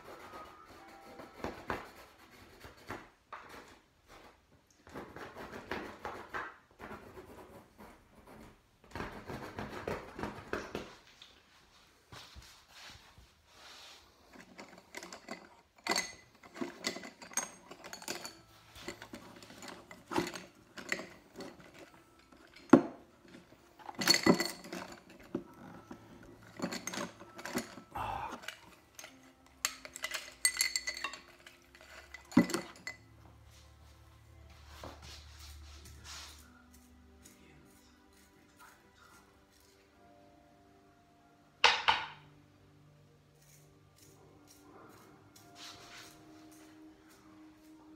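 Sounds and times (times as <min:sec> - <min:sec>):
metal knife clinking and scraping: 0:13.7 - 0:33.6, 0:35.4 - 0:39.9, 0:43.3 - 0:47.8.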